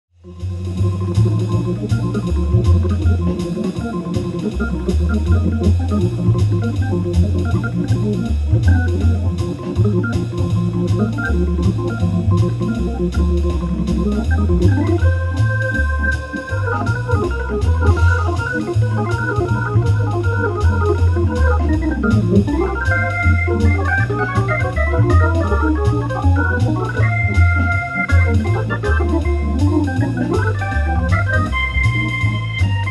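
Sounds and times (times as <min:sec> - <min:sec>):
organ jazz improvisation: 0:00.2 - 0:32.9.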